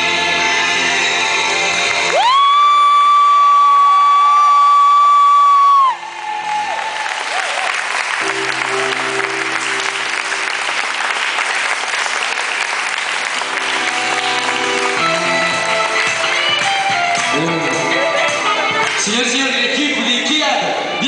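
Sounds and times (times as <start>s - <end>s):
audience applauding: 1.9s - 19.1s
held music chords: 13.4s - 20.2s.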